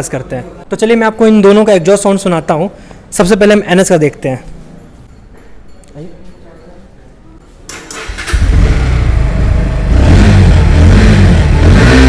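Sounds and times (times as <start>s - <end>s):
motorcycle engine starting: 7.7s - 12.0s
motorcycle engine revving: 7.9s - 12.0s.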